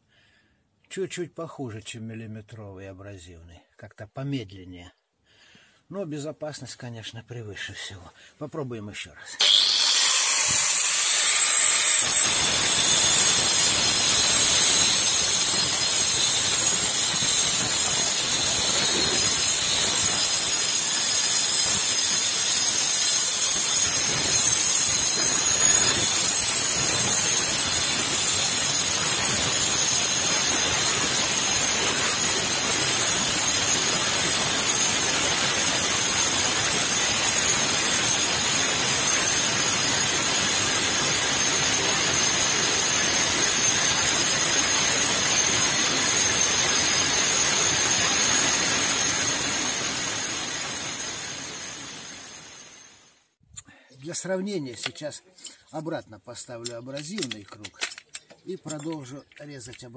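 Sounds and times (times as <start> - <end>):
angle grinder cutting sheet steel: 9.4 - 53.0.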